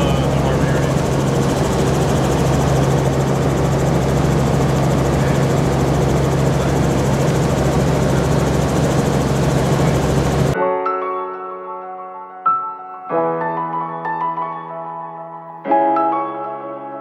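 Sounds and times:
helicopter engine and rotors droning: 0.0s - 10.6s.

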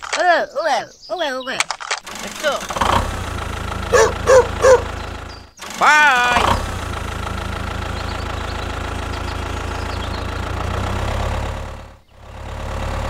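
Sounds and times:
tractor engine running at low revs: 2.1s - 13.0s.

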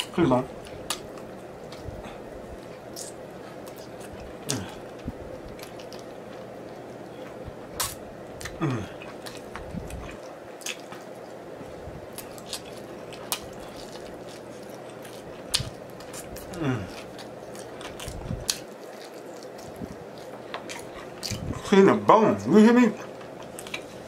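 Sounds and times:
person humming mm: 4.4s - 4.8s, 8.4s - 9.0s, 16.5s - 17.0s
wet eating smacks and sucking: 7.8s - 8.6s.

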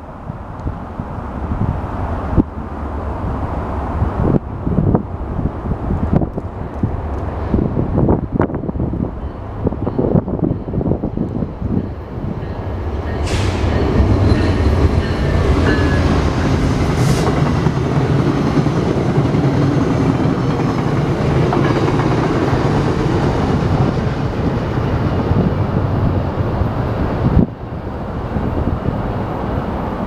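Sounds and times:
train wheels rumbling on rails: 0.0s - 30.0s
brief hisses: 13.2s - 13.7s.

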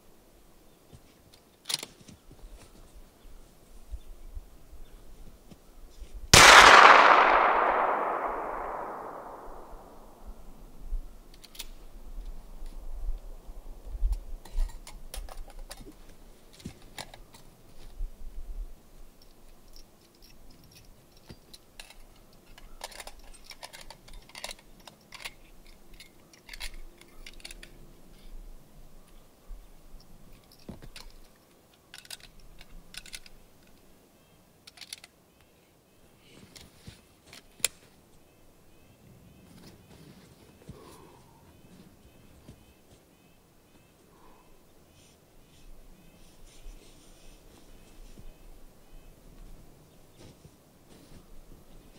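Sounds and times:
metallic clicks from handling rifle: 1.3s - 2.2s, 11.3s - 12.4s, 14.1s - 17.9s, 19.2s - 28.4s, 30.0s - 33.9s, 34.6s - 35.5s, 37.3s - 37.9s.

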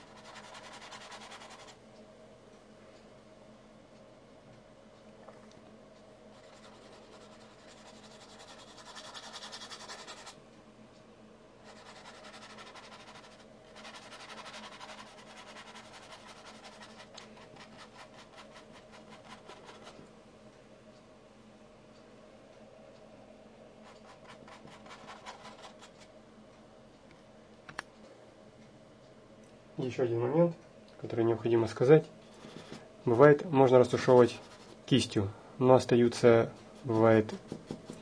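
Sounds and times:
paintbrush strokes: 6.3s - 10.4s, 11.6s - 20.0s, 33.8s - 34.9s.

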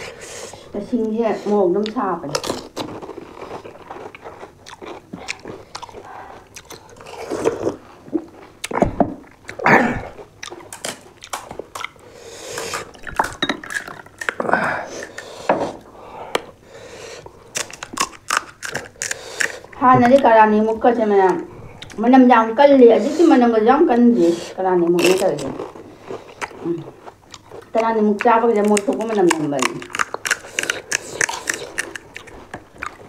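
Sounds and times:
crisp shells crunching while chewing: 1.9s - 9.6s, 10.2s - 15.4s, 17.4s - 20.3s, 24.9s - 33.0s.

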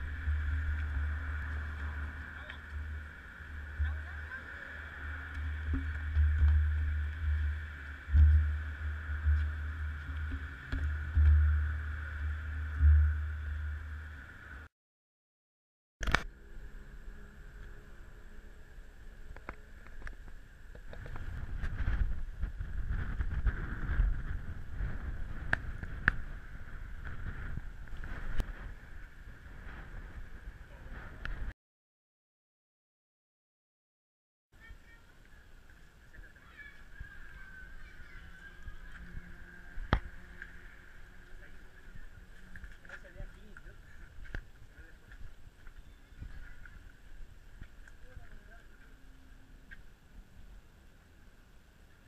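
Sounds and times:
steady high hum: 0.0s - 14.7s, 36.8s - 52.0s
wind buffeting microphone: 20.0s - 31.5s, 36.4s - 48.5s.

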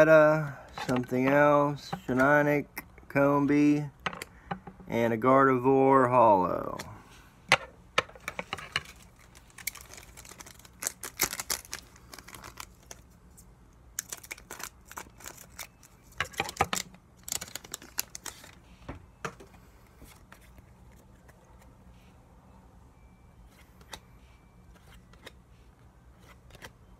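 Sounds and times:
cards and plastic crinkling: 8.0s - 18.8s, 24.7s - 25.4s, 26.2s - 26.8s.

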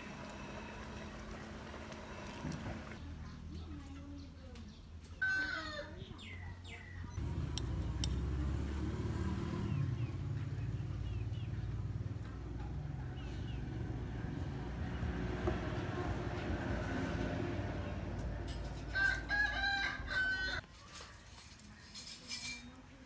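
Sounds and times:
small birds chirping: 5.8s - 8.3s
low motor rumble: 7.2s - 20.6s.

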